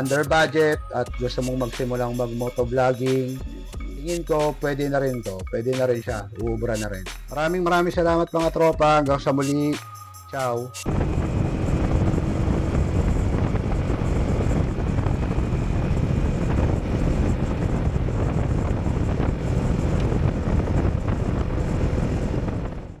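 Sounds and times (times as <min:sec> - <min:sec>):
wind rushing over microphone: 0:10.8 - 0:23.0
motorcycle engine running: 0:10.9 - 0:23.0.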